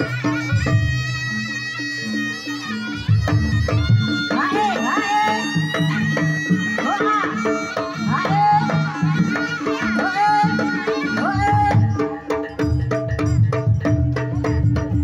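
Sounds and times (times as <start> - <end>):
shawm playing sliding melody: 0.0 - 15.0
hand drumming: 3.1 - 15.0.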